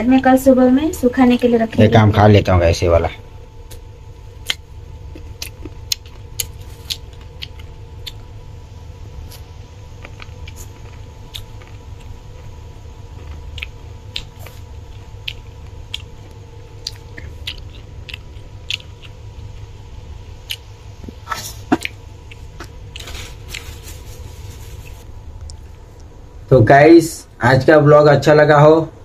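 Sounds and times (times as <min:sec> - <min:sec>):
low hum: 0:00.0 - 0:29.0
person chewing crunchy fruit: 0:03.6 - 0:26.2.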